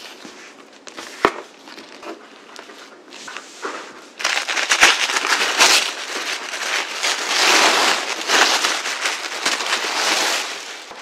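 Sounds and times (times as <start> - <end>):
wrapping paper crinkling and tearing: 4.2 - 11.0.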